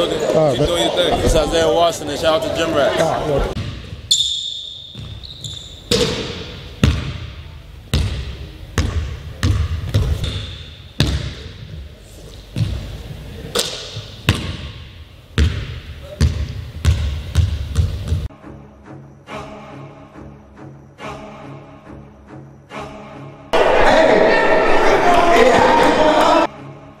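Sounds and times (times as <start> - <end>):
basketball bouncing on wooden floor: 6.8 - 7.2, 8.8 - 10.4, 11.0 - 11.4, 15.4 - 18.3.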